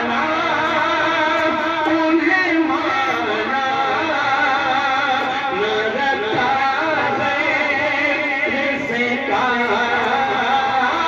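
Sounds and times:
person chanting recitation: 0.0 - 11.0.

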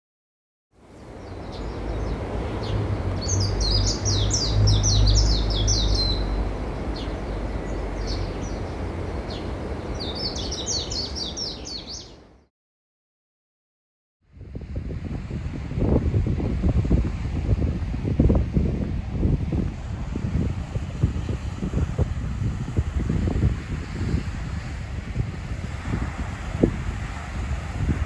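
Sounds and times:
surf rushing: 0.8 - 12.0, 14.6 - 28.0
birds chirping: 0.9 - 12.5.

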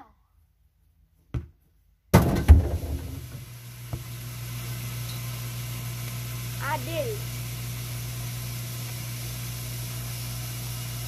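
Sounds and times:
ball knocking on net: 1.3 - 3.2.

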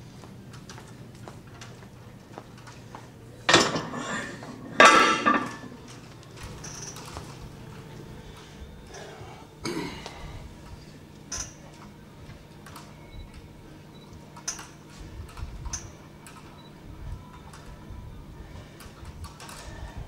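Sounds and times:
low room hum: 0.0 - 20.0
loud barbell clank: 4.8 - 5.6.

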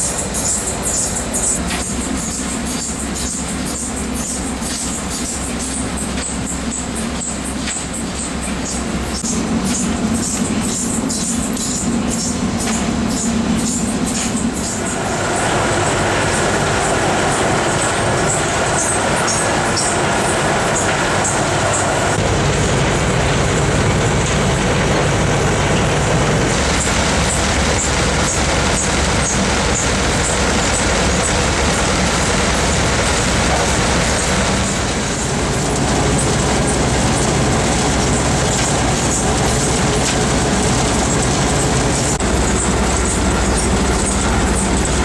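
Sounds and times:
conveyors rumbling: 0.0 - 45.0.

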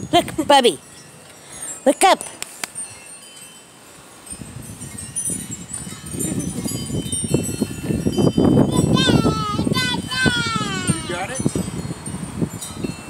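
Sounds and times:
wind rumbling on microphone: 0.0 - 1.0, 4.2 - 13.0
wind chimes ringing: 0.0 - 13.0.

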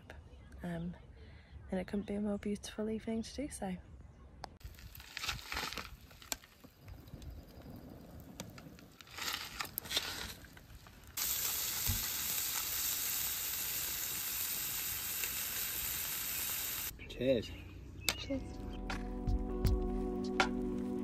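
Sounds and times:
fire crackling: 4.6 - 16.9
steaks sizzling on a grill: 11.2 - 16.9.

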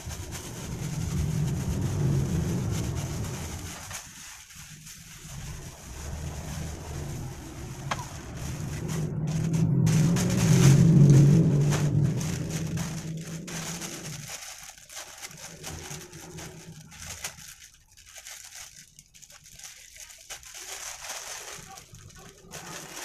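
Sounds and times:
passing vehicle engine hum: 0.0 - 3.8, 5.2 - 14.3
plastic bag crinkling: 0.0 - 23.0.

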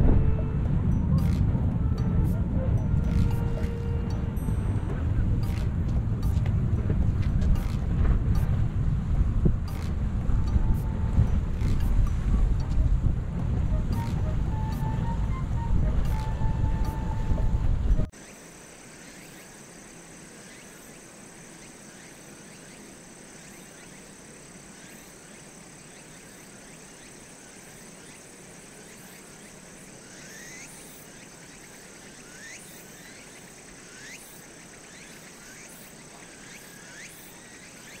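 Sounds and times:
high-pitched insect trill: 18.2 - 38.0.

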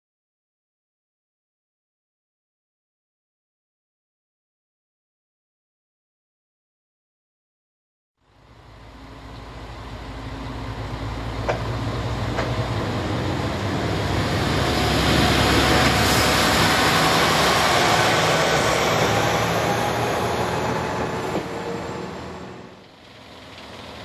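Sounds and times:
diesel railcar passing: 8.2 - 24.0.

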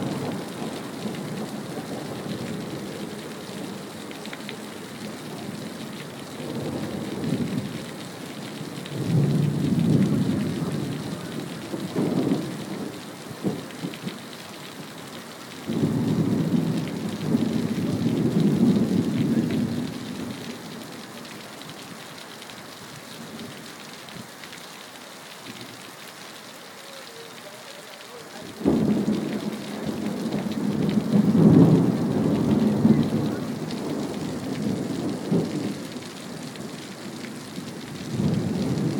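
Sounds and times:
thunder rumbling: 0.0 - 14.2, 15.7 - 20.9, 28.0 - 38.9
steady rain: 0.0 - 38.9.

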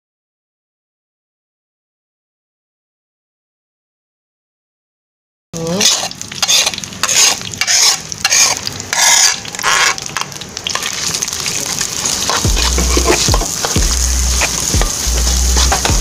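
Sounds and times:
paste sizzling in hot oil: 5.6 - 16.0
spatula scraping wok: 5.6 - 16.0.

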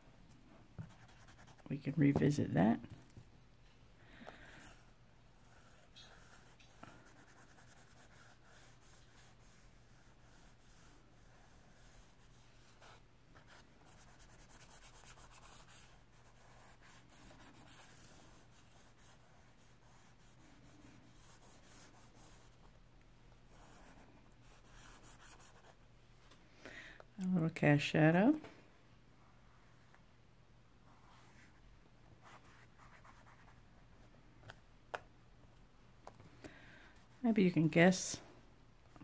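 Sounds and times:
low steady hum: 0.0 - 39.0
charcoal scratching on paper: 5.4 - 22.6.

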